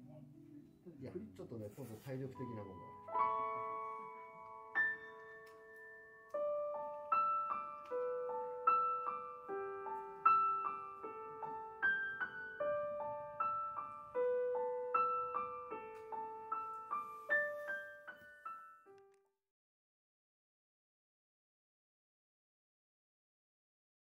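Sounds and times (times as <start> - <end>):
solo piano: 0.0 - 19.3.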